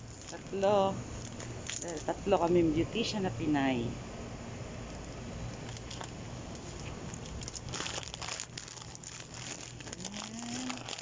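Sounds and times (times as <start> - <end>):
plastic packets crinkling: 0.0 - 2.2, 5.6 - 11.0.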